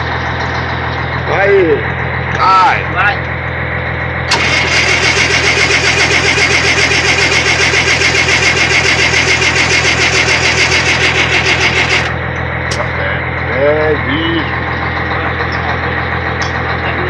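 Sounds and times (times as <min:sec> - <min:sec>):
starter motor cranking diesel engine: 0:04.2 - 0:13.1.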